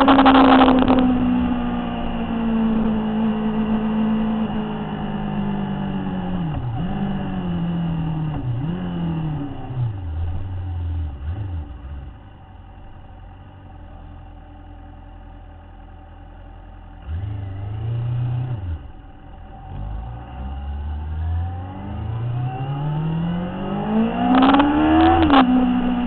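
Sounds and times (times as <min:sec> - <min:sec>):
motorcycle engine revving: 0:00.0 - 0:13.1, 0:16.9 - 0:26.0.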